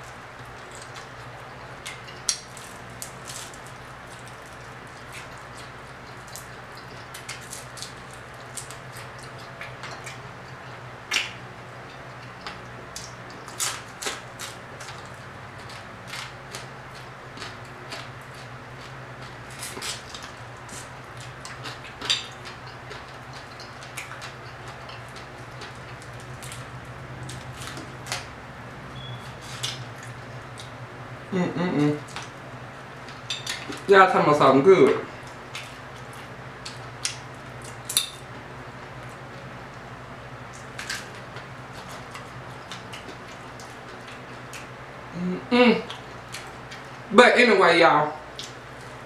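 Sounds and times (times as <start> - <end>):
crunching fried fish: 0.0 - 28.3
steady low hum: 0.0 - 49.0.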